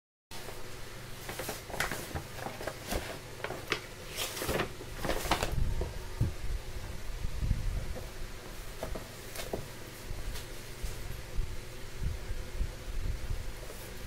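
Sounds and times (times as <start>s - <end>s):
packaging scrapes and rustles: 1.2s - 5.9s.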